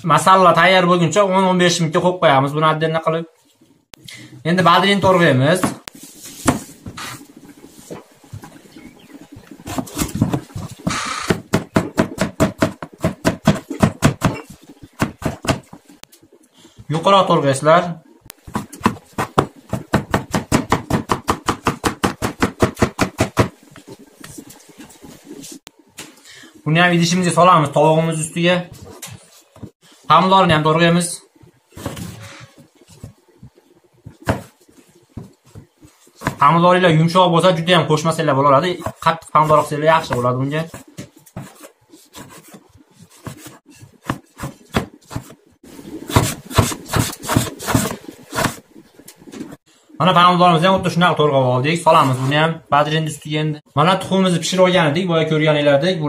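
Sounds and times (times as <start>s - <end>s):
knife chopping on cutting board: 11.3s - 15.8s, 18.5s - 23.6s, 34.2s - 34.5s, 43.2s - 45.4s, 46.1s - 48.6s.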